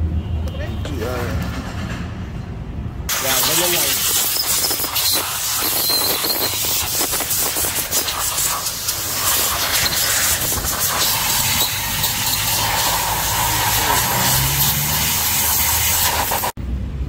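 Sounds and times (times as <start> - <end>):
hose nozzle spraying hiss: 3.1 - 16.6.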